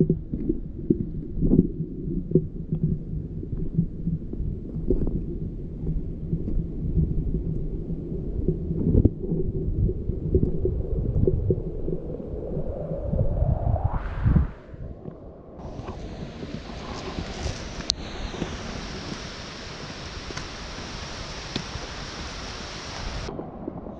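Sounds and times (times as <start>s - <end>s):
wind buffeting microphone: 5.3s - 23.9s
footsteps on stone steps: 15.6s - 19.2s.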